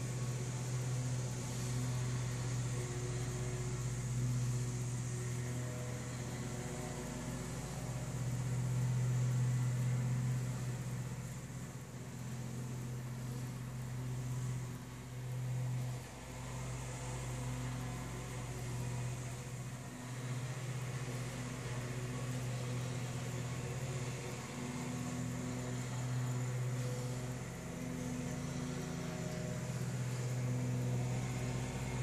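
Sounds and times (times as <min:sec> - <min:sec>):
riding lawn mower engine: 0:00.0 - 0:32.0.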